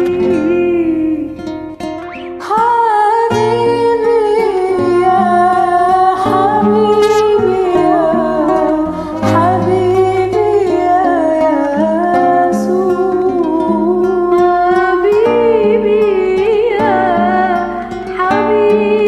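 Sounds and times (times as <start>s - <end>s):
women singing a hymn: 2.4s - 19.0s
instrumental backing track: 6.6s - 8.0s.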